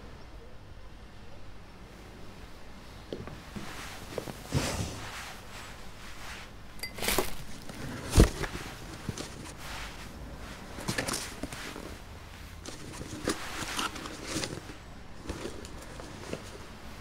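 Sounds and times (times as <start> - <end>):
box scraping: 3.7 - 5.5, 7.0 - 16.7.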